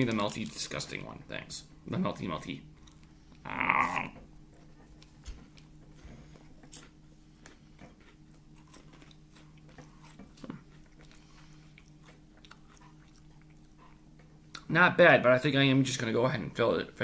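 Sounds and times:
steady low hum: 0:00.0 - 0:17.0
chewing and mouth sounds: 0:02.8 - 0:03.4, 0:06.6 - 0:14.7.

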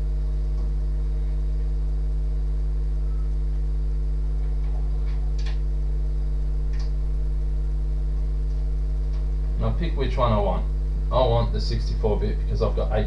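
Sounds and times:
low electrical hum: 0:00.0 - 0:13.0
light clicks: 0:06.7 - 0:07.0.

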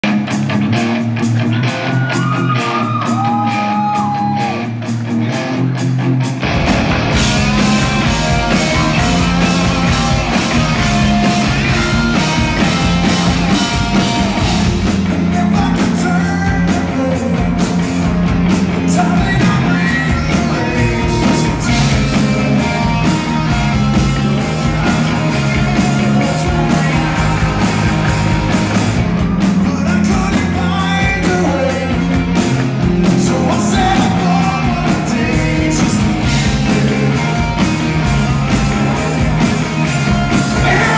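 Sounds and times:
bass guitar: 0:00.0 - 0:40.9
drums: 0:00.0 - 0:40.9
electric guitars: 0:00.0 - 0:40.9
male lead vocal: 0:14.5 - 0:17.9, 0:18.8 - 0:28.6, 0:29.4 - 0:32.3, 0:32.9 - 0:37.8, 0:40.2 - 0:40.9.

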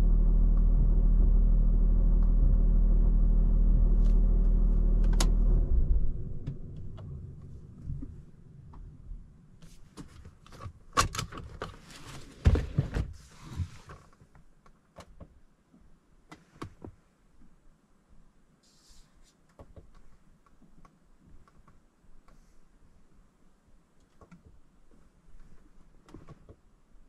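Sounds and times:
knocks and thumps in car cabin: 0:12.4 - 0:13.7.

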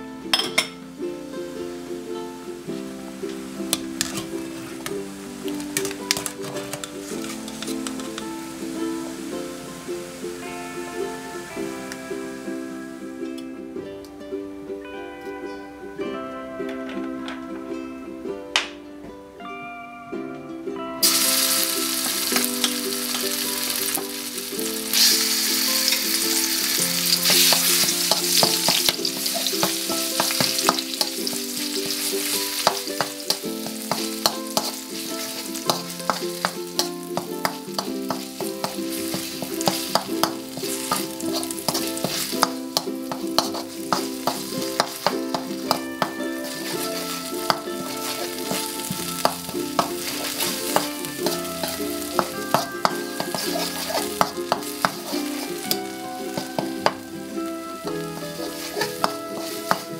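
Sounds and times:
paste sizzling in hot oil: 0:03.3 - 0:12.0, 0:21.0 - 0:59.9
metal spoon scraping wok: 0:04.0 - 0:04.9, 0:21.0 - 0:59.9.

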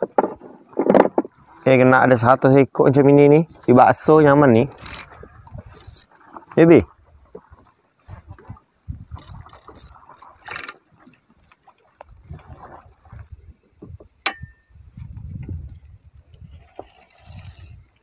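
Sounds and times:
fishing tackle clicking: 0:09.8 - 0:10.8
steady high-pitched whine: 0:13.1 - 0:16.2.

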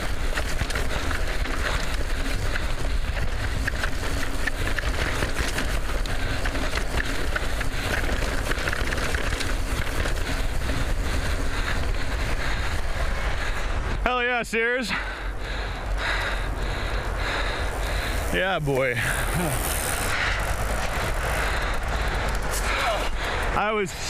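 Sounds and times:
bike rattling with clicks: 0:00.0 - 0:14.0, 0:14.8 - 0:24.0
wind rumbling on microphone: 0:00.0 - 0:14.0
bike tyres rolling on dirt: 0:00.0 - 0:24.0.

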